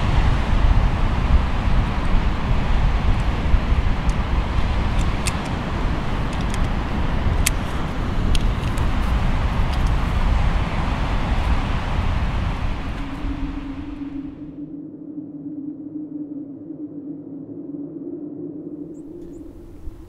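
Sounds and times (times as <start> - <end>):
ocean surf breaking: 0.0 - 14.6
wind buffeting microphone: 0.0 - 20.0
sharp clicks: 4.9 - 5.6, 6.3 - 8.9.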